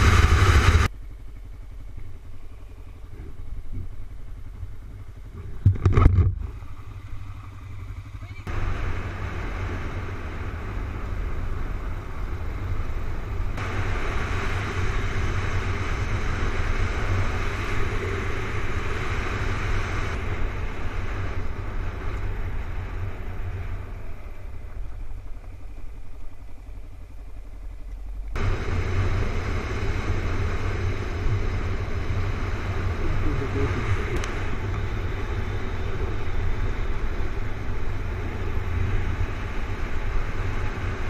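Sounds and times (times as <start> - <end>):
gravel road noise: 0.0 - 41.0
motorcycle engine: 0.0 - 41.0.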